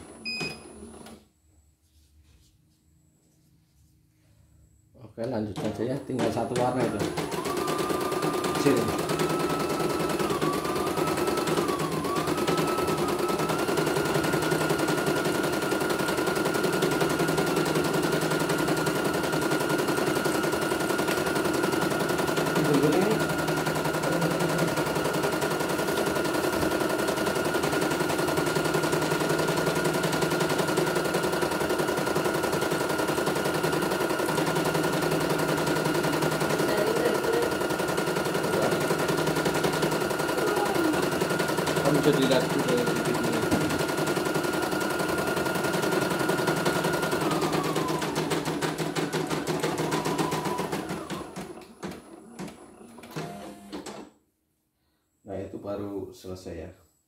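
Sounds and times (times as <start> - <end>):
embroidery machine needle clatter: 19.0 - 52.5.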